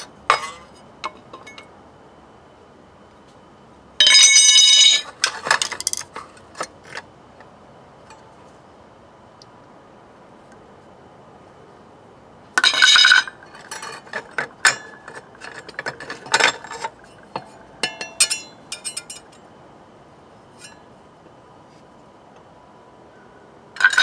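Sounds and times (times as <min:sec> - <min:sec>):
metal clutch parts clinking: 0:04.0 - 0:07.0, 0:12.6 - 0:19.4, 0:23.8 - 0:24.0.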